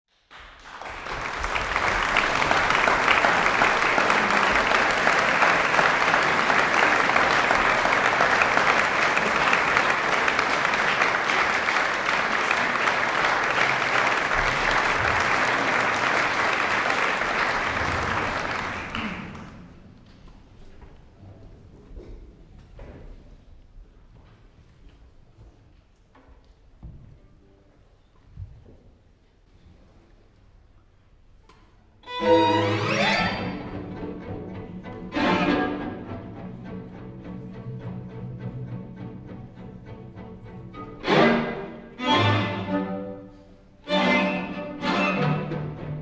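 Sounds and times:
audience applauding: 0.2 - 20.0.

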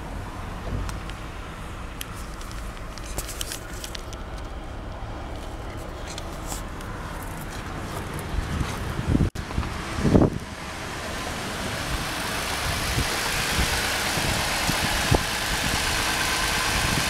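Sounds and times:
handling clicks and rustles: 1.9 - 9.8
car engine idling: 9.4 - 17.0.

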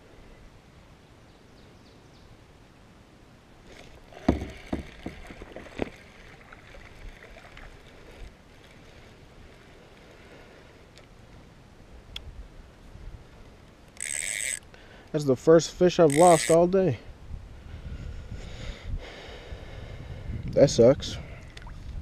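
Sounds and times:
knocks on plastic kayak hull: 4.2 - 6.0.

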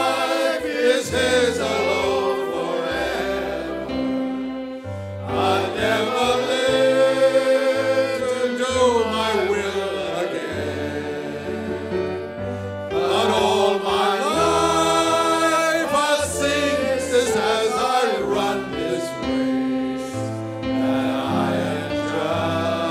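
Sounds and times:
men singing a hymn: 0.0 - 22.9.

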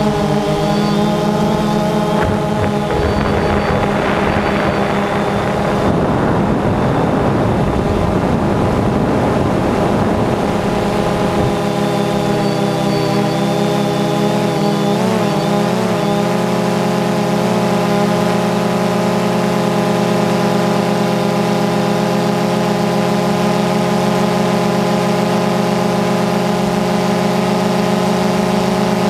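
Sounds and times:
wind noise: 0.0 - 12.4
drone propellers whining: 0.0 - 21.4.

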